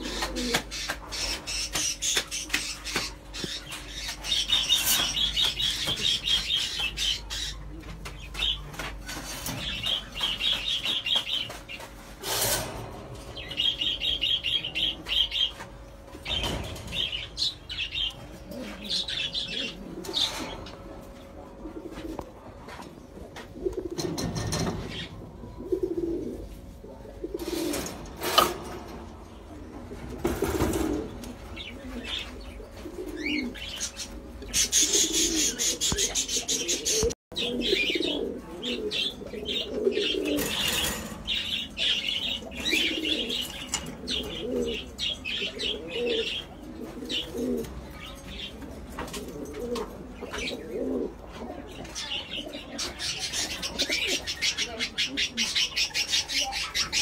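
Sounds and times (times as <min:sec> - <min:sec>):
cage birds chirping: 0:00.0 - 0:57.0
pigeons cooing: 0:00.0 - 0:57.0.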